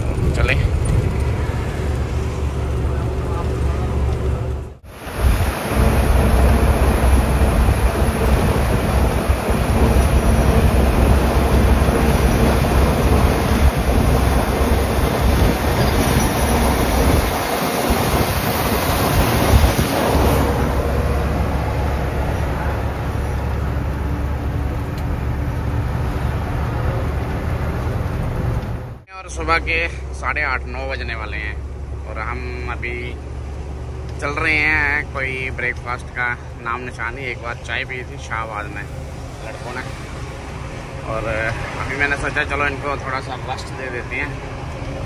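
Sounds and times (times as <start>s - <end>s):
wind rushing past cab window: 0.0s - 29.0s
truck engine rumble: 0.0s - 45.0s.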